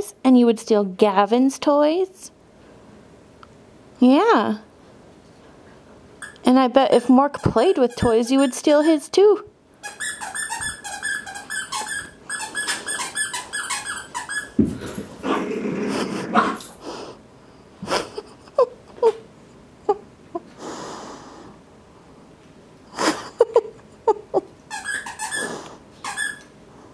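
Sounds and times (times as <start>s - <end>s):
dogs high squeaky whines: 6.2s - 6.5s, 7.2s - 9.2s, 9.8s - 14.6s, 24.6s - 26.6s
dogs whimpering: 7.4s - 9.2s, 24.1s - 26.5s.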